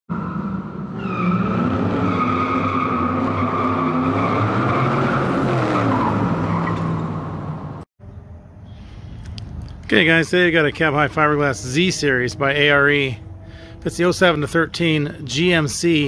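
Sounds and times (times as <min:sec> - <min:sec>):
car engine revving: 0:00.1 - 0:07.8.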